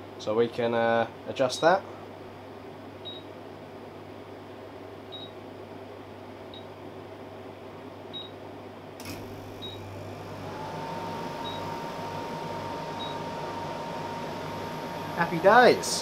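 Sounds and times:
motor hum: 9.0s - 16.0s.

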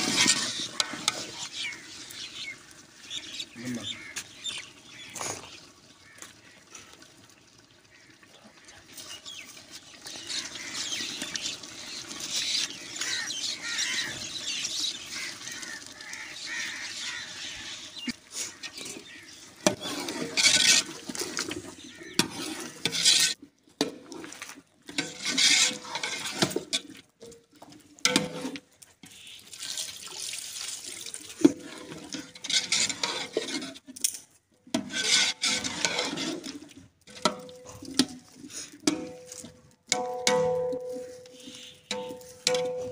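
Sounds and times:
ladle scraping pot: 0.0s - 1.8s, 18.0s - 27.3s, 28.0s - 29.2s, 31.4s - 34.0s, 34.7s - 42.9s
potatoes sizzling in oil: 0.0s - 6.8s, 8.9s - 20.9s.

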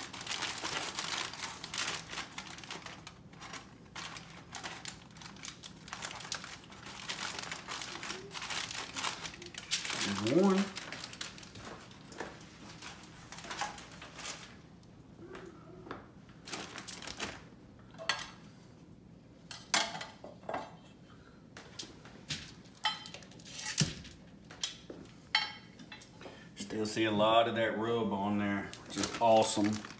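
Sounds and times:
foil rustling: 0.0s - 14.8s, 16.4s - 17.5s, 28.4s - 29.9s.

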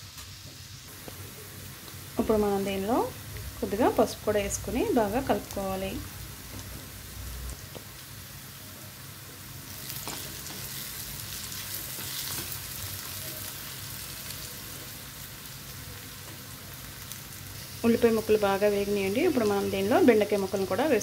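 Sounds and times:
vegetables sizzling in hot oil: 0.0s - 21.0s.

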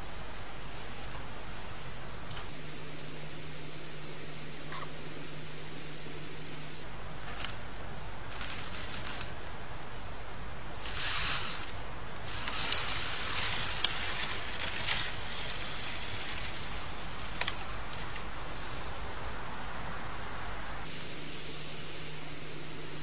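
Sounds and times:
crunching and rustling in snow: 2.5s - 6.8s, 20.9s - 23.0s
steady hiss: 2.5s - 6.8s, 20.9s - 23.0s.

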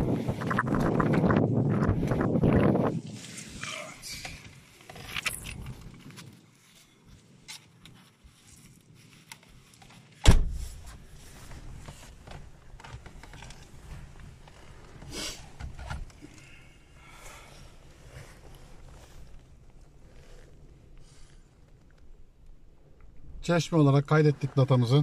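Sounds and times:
car door shutting: 10.2s - 10.8s.

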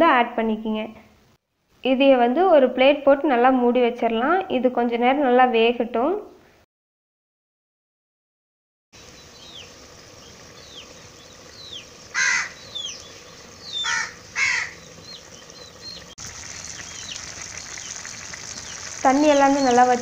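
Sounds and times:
crow cawing: 12.1s - 12.9s, 13.7s - 14.9s.

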